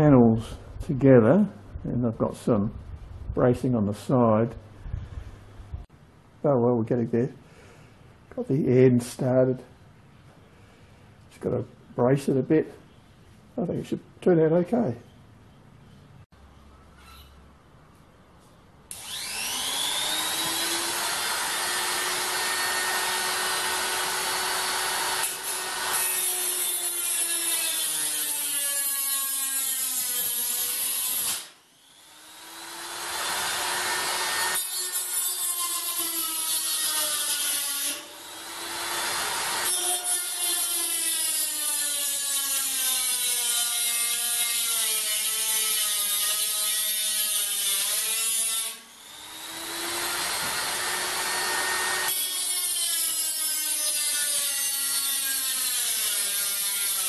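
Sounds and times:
rotary tool cutting sheet metal: 0:18.9 - 0:57.0.

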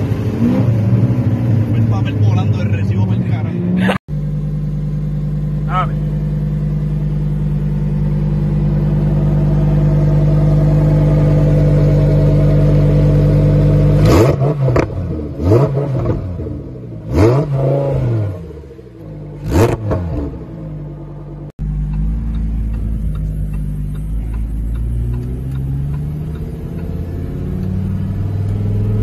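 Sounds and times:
car engine idling and revving: 0:00.0 - 0:29.0.

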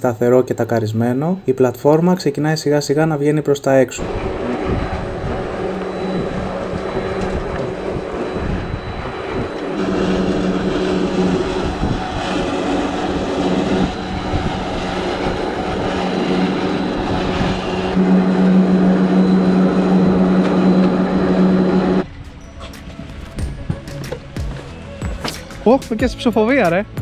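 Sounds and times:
boat lift machinery humming: 0:04.0 - 0:25.0.

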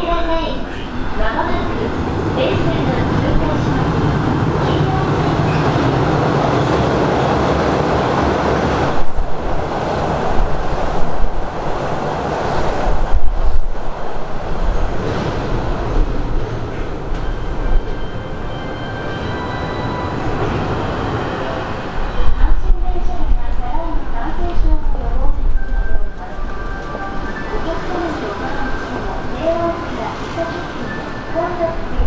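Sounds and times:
electric train passing: 0:00.0 - 0:32.0.

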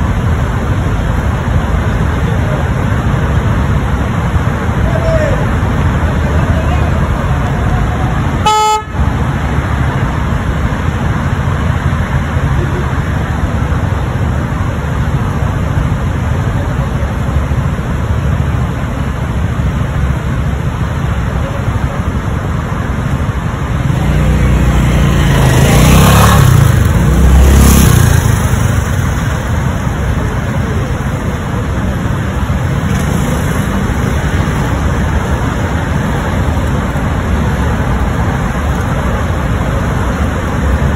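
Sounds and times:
road traffic rumble: 0:00.0 - 0:40.9
car horn toot: 0:08.4 - 0:09.0
vehicle passing close: 0:22.9 - 0:40.9.

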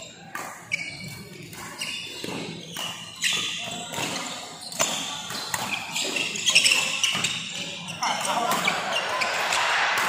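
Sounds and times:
shoe squeaks: 0:00.0 - 0:09.4
rackets striking shuttlecock: 0:00.3 - 0:10.0
crowd murmur: 0:07.7 - 0:10.0.

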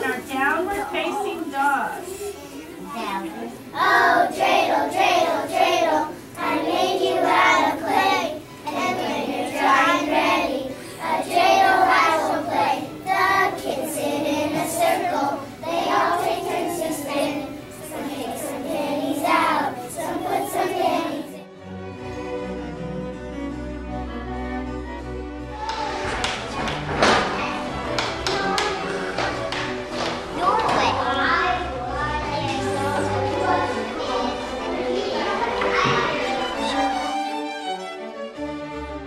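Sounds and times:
children singing in unison: 0:03.6 - 0:21.5, 0:30.4 - 0:37.5
bowed string music: 0:20.7 - 0:39.0.

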